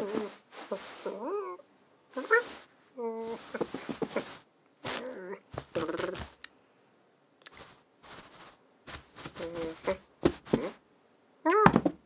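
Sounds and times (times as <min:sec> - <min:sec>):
person making cat noises: 0:00.0 - 0:06.4, 0:09.2 - 0:10.8, 0:11.4 - 0:11.9
mouth clicks and snaps: 0:05.8 - 0:06.6, 0:07.4 - 0:07.6.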